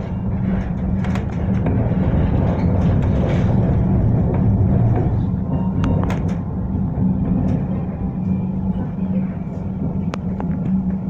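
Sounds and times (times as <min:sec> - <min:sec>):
tram rumble and hum: 0:00.0 - 0:11.0.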